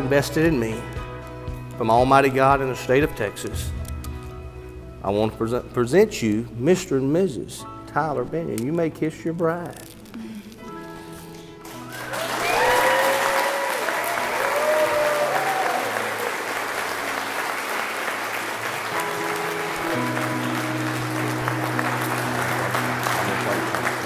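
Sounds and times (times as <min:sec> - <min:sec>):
music: 0:00.0 - 0:24.0
crowd applauding and cheering: 0:11.6 - 0:24.0
loud whoops: 0:11.9 - 0:16.4.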